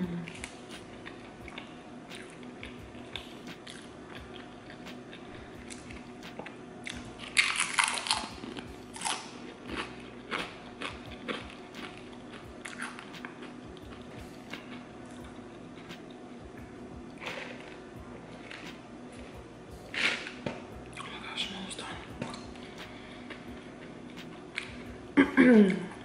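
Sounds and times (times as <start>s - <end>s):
quiet chewing: 0.2s - 16.4s
crunching tortilla chip: 0.3s - 16.2s.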